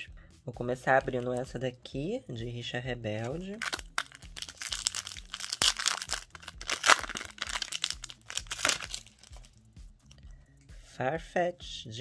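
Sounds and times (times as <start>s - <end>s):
foil wrapper crinkling and tearing: 3.2s - 9.5s.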